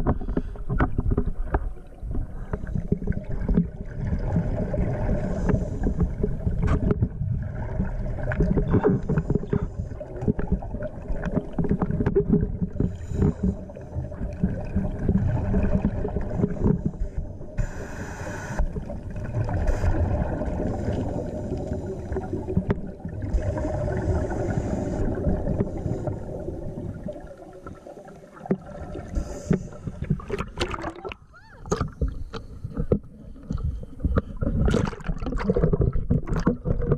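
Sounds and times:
underwater bubbles gurgling: 0.0 - 36.9
hiss: 17.6 - 18.7, 23.4 - 25.1.

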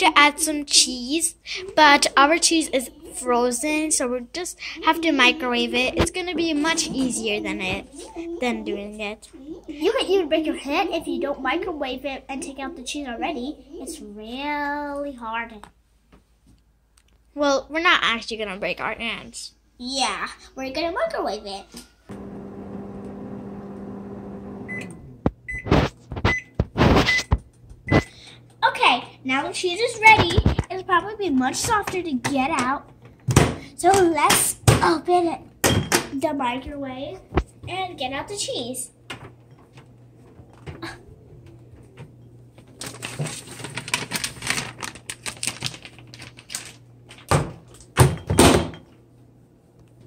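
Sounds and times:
microwave oven humming: 22.1 - 29.7
plastic bag crinkling: 42.7 - 47.3.

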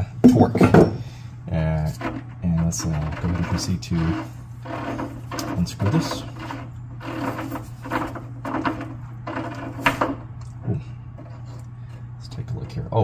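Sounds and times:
steady low hum: 0.0 - 13.0
metal threads scraping: 1.7 - 10.4, 11.1 - 11.8.

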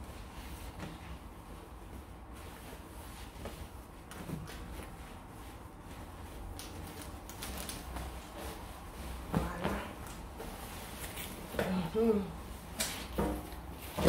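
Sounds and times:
fabric rustling: 0.0 - 14.0.

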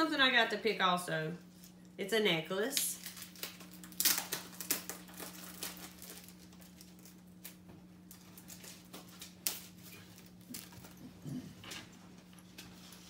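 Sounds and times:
steady low hum: 0.0 - 13.0
clicks and crinkles of packaging: 2.8 - 11.0.

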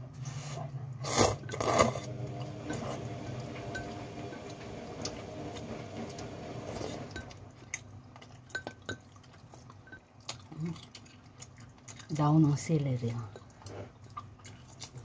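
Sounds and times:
noodles being slurped: 1.0 - 15.0
chewing: 4.4 - 15.0.

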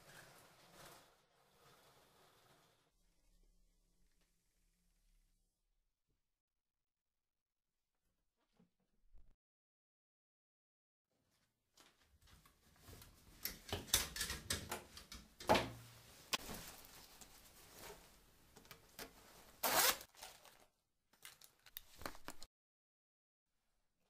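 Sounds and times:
fabric rustling: 15.9 - 20.7
zip being done up: 19.6 - 20.1.

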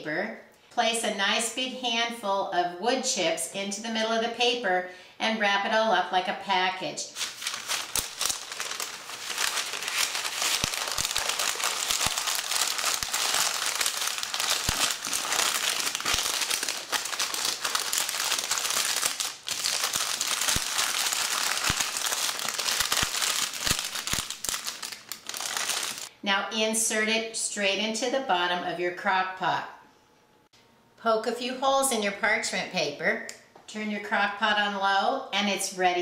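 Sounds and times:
parchment paper crinkling: 7.1 - 26.1.

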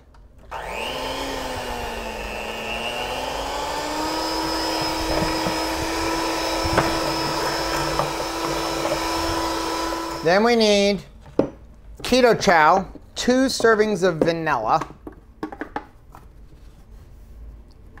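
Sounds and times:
electric hand mixer whine: 0.5 - 10.4.

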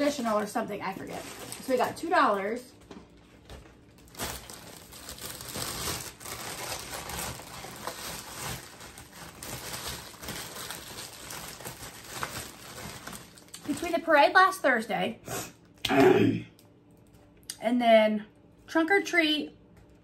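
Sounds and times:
plastic bag crinkling: 0.0 - 14.1.

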